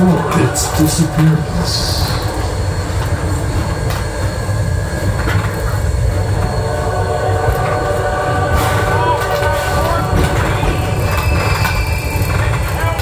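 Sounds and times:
train cars rumbling: 0:00.0 - 0:13.0
wheel squeal: 0:08.6 - 0:13.0.

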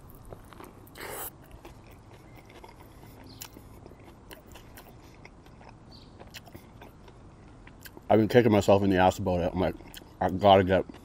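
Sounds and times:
biting into a sandwich: 0:00.0 - 0:08.1
closed-mouth chewing: 0:00.0 - 0:08.1, 0:09.7 - 0:11.0.

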